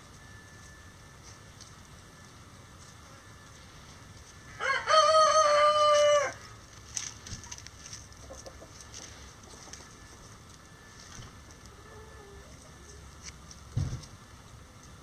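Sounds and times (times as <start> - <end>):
rooster crowing: 4.6 - 6.5.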